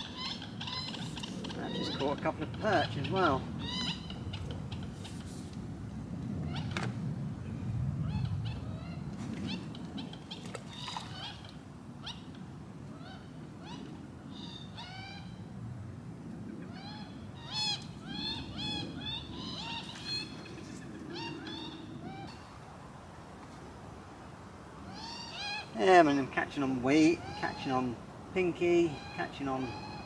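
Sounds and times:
birds calling: 0.0s - 5.5s, 6.4s - 15.6s, 16.4s - 23.3s, 24.0s - 30.0s
wind rumble on microphone: 0.0s - 30.0s.

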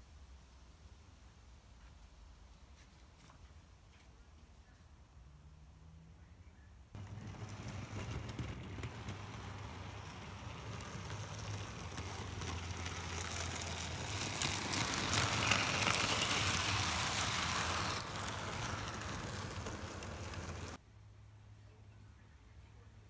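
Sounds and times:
model train wheels on rail: 7.0s - 20.8s.

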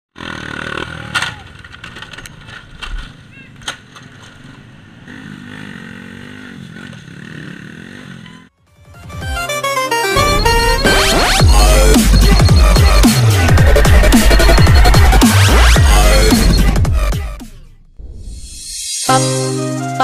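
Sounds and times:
indistinct voices: 10.2s - 17.6s.

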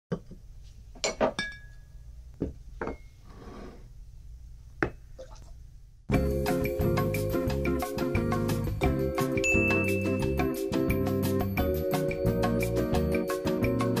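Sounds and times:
glass clinking: 1.0s - 1.9s, 9.4s - 10.4s
music with steady beat: 6.1s - 14.0s.

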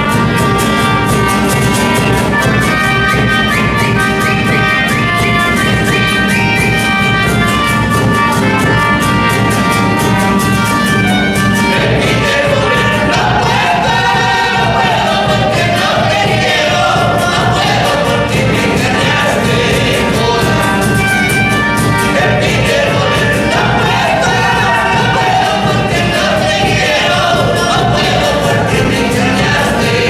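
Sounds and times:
bass drum beat: 0.0s - 30.0s
strummed acoustic guitars: 0.0s - 30.0s
men singing together: 11.6s - 30.0s.

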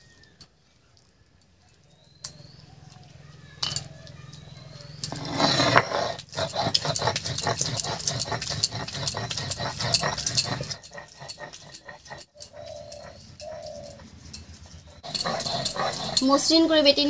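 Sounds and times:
stone knocking and scraping on stone: 5.0s - 12.3s.

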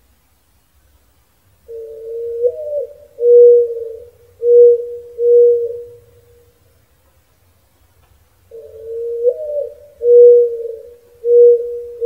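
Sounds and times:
mourning dove cooing: 1.6s - 6.7s, 8.4s - 12.0s.

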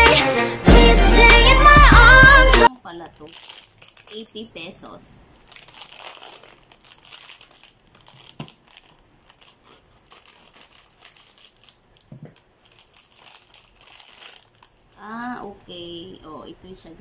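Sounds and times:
plastic wrapping crinkling: 2.7s - 15.7s.

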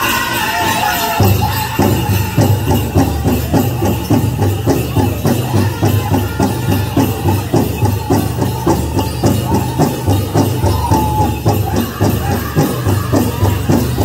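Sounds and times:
high-pitched group singing: 0.0s - 14.0s
jingling bells: 0.0s - 14.0s.

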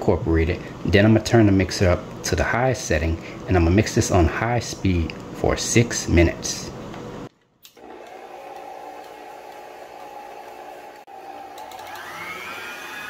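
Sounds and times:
stand mixer motor humming: 7.8s - 13.0s.

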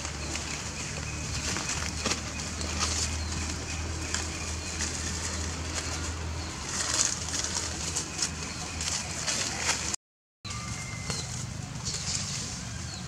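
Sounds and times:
bird calls: 0.0s - 9.9s
dry leaves rustling and crackling: 0.0s - 13.0s.

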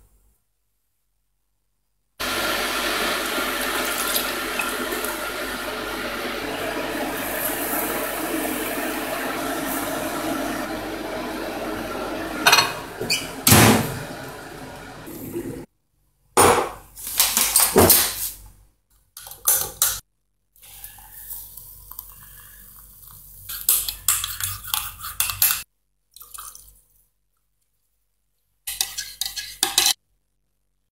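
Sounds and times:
water poured into a mug: 2.2s - 13.4s, 26.2s - 26.8s
teaspoon stirring in a mug: 21.9s - 25.6s, 28.7s - 30.0s.

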